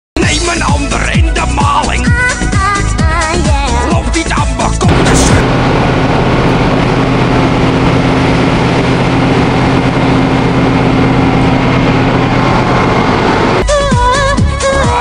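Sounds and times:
ship engines humming: 4.9 - 14.4.

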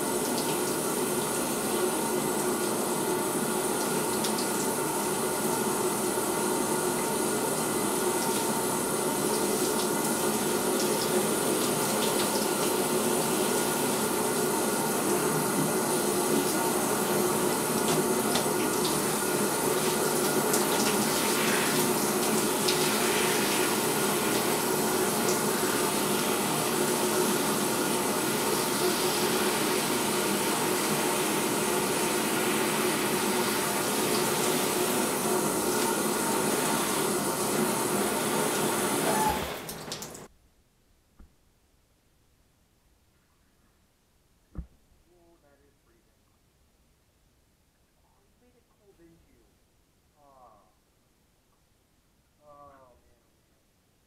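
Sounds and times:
shower spray on fabric: 8.1 - 40.3.

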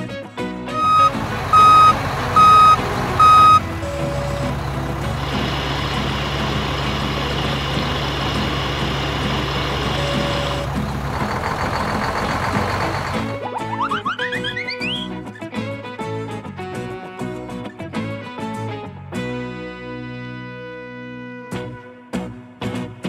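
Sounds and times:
truck reversing beeps: 0.7 - 15.0
truck engine running: 0.8 - 13.4.

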